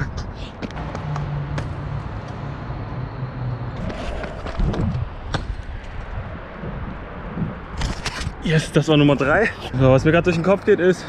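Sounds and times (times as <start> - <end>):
street traffic hum: 0.0 - 11.0.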